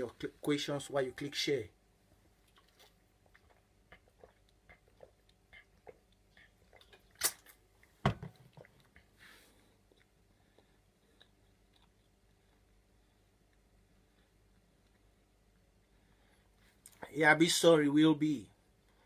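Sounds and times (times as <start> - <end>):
thump: 8.0 - 8.4.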